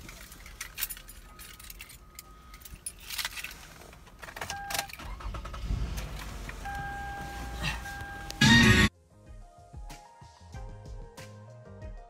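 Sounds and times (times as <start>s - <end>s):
car keys jangling: 0.0s - 8.4s
car engine starting and running: 3.6s - 8.9s.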